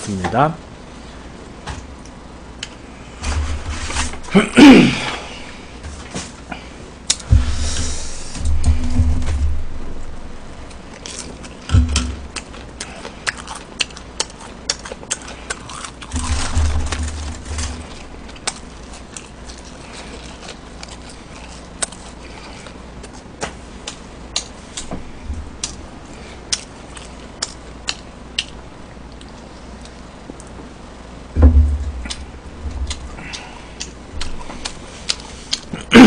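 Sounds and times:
low rumble: 7.2 - 10.9, 31.3 - 33.4
crunchy chewing: 10.4 - 31.1, 32.0 - 35.9.

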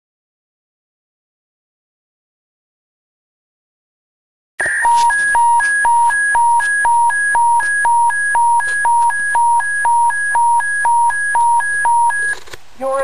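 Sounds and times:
two-tone electronic alert: 4.6 - 12.4.

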